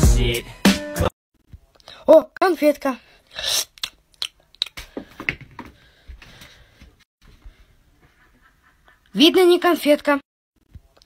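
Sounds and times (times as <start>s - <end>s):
mouth clicks: 3.4s - 4.8s.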